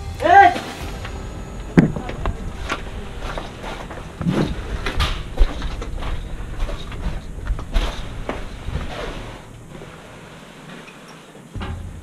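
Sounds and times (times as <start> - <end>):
person moving through wooden structure: 1.9 - 12.0.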